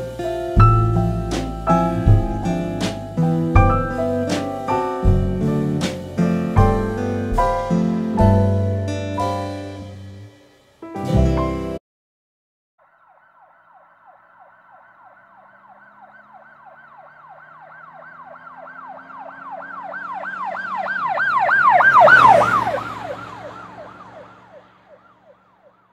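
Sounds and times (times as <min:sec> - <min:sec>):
engine hum: 0:00.0 - 0:10.4, 0:13.4 - 0:25.9
emergency siren yelping: 0:12.8 - 0:25.9.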